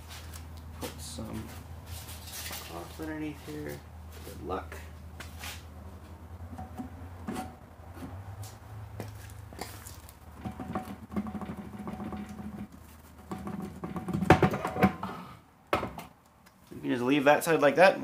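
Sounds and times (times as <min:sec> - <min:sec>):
metal rubbing and scraping: 0:06.5 - 0:08.6, 0:09.6 - 0:15.1.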